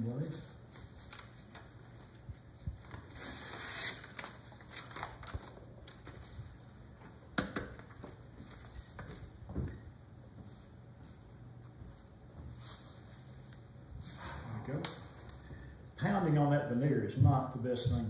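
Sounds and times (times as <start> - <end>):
low steady hum: 0.0 - 18.0
paper rustling: 0.2 - 6.6.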